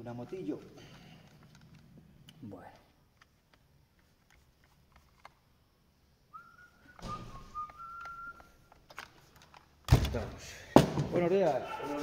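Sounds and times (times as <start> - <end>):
person whistling: 6.3 - 8.7.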